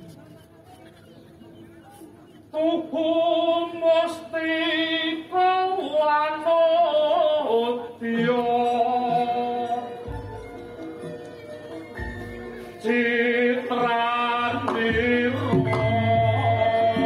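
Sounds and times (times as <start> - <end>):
faint music: 0.0 - 17.0
person singing with vibrato: 2.6 - 10.3, 12.7 - 17.0.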